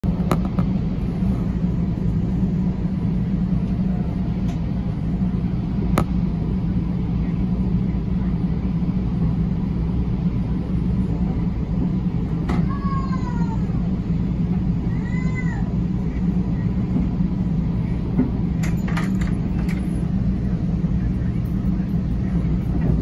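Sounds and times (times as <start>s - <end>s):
train rumble inside carriage: 0.0s - 23.0s.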